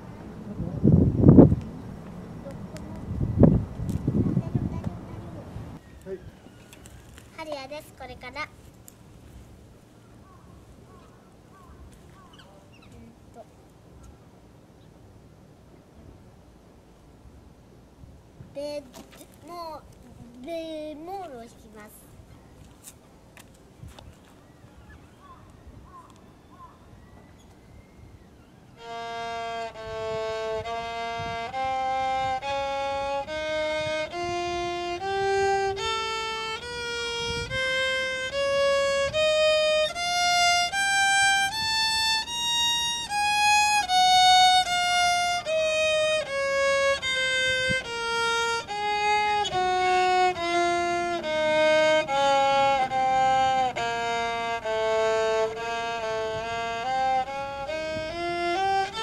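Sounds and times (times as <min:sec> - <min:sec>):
violin playing a scale: 0:28.8 - 0:59.0.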